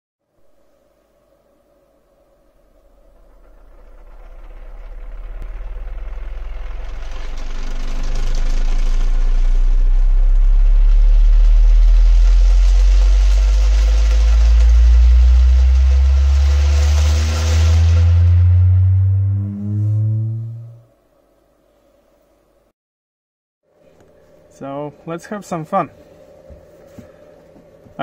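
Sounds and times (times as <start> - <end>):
deep steady bass tone: 2.5 - 20.9
higher bass note: 3.0 - 21.0
hiss: 10.6 - 18.6.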